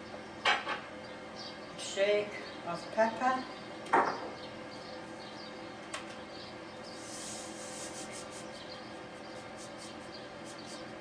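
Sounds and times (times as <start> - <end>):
soft rubbing: 7.0 - 10.8.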